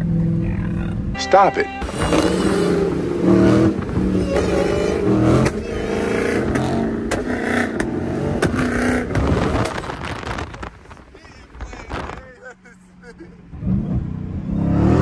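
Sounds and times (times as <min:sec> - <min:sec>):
car engine revving: 0:00.0 - 0:15.0
sharp clicks or pops: 0:06.6 - 0:11.0.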